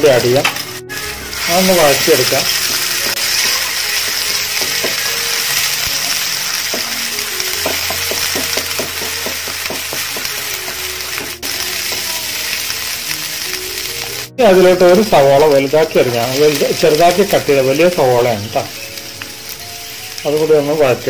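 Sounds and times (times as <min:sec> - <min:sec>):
paste sizzling in hot oil: 0:00.0 - 0:21.0
spatula tapping on pan: 0:02.7 - 0:05.6, 0:06.6 - 0:12.1.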